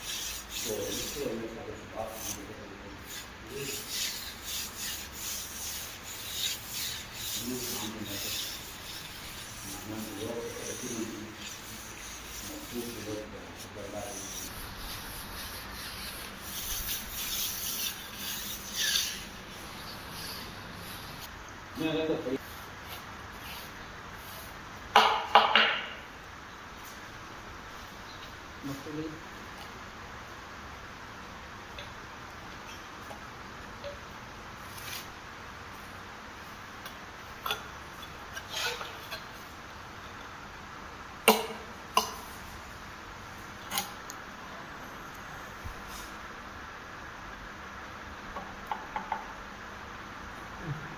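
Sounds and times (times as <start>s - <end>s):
steady hiss: 0.0s - 50.9s
hand float scraping over plaster: 3.1s - 21.3s.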